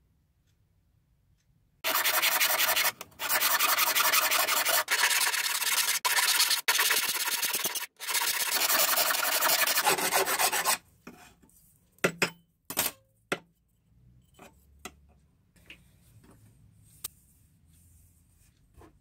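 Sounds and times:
hand file rasping on metal: 1.8s - 10.8s.

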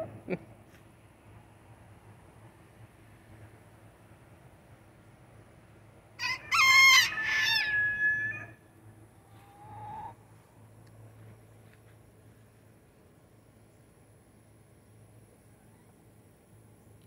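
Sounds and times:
rooster crowing: 6.2s - 8.6s.

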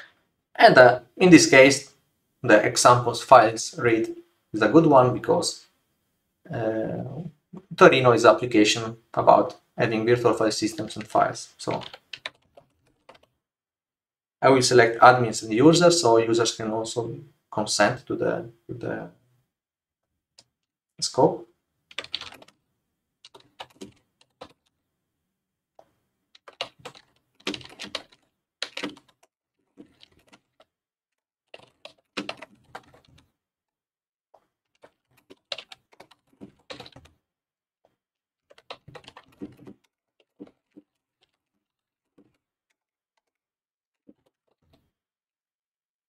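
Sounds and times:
keyboard typing: 10.7s - 13.3s, 21.9s - 22.6s, 23.2s - 24.7s, 25.8s - 30.7s, 31.5s - 33.3s, 34.4s - 37.2s, 38.5s - 42.4s, 43.2s - 43.4s, 44.0s - 44.8s.

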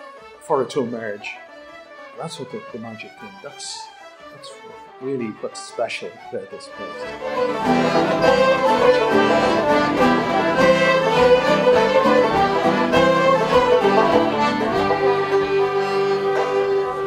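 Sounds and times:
banjo: 0.0s - 17.0s
fiddles: 0.0s - 17.0s
flute: 0.0s - 17.0s.

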